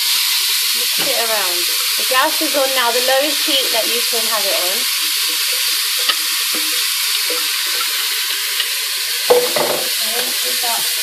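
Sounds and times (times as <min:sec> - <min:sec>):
food sizzling in hot oil: 0:00.0 - 0:11.0
spatula scraping and stirring: 0:01.0 - 0:09.3.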